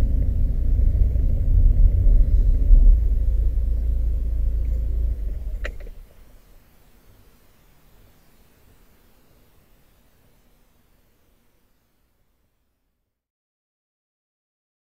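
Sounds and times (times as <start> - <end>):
car engine and tyre rumble: 0.0 - 6.0.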